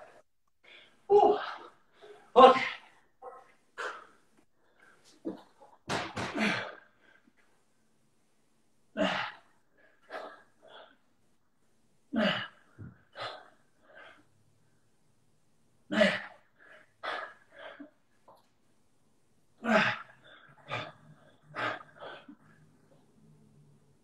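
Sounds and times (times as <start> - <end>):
person breathing forcefully: 19.7 - 22.8.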